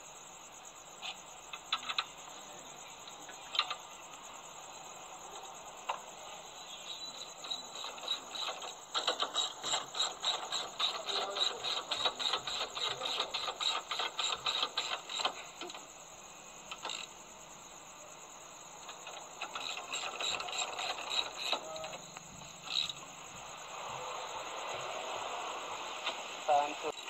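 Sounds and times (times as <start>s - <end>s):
ratchet wrench clicking: 7.6s - 15.8s.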